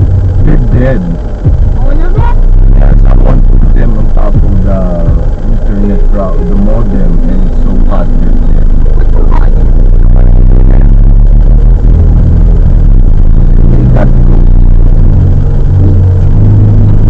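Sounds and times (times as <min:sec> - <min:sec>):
car engine drone: 0:00.0 - 0:17.0.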